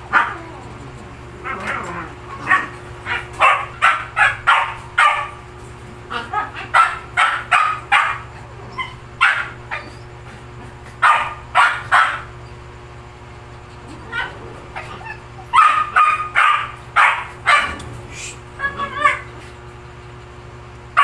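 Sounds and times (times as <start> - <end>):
faint steady hum: 0.0 - 21.0
dog barking: 0.1 - 0.5, 1.4 - 5.4, 6.1 - 10.0, 11.0 - 12.3, 14.0 - 18.0, 18.6 - 19.3.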